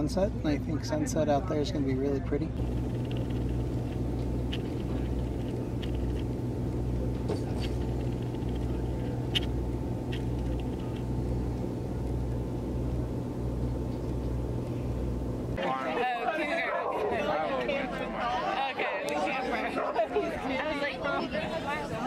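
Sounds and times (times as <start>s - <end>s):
low throbbing hum: 2.5s - 15.6s.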